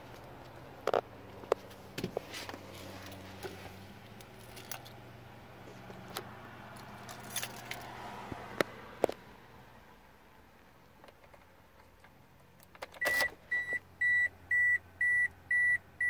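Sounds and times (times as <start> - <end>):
car keys jangling: 3.0 - 5.0, 6.7 - 7.9.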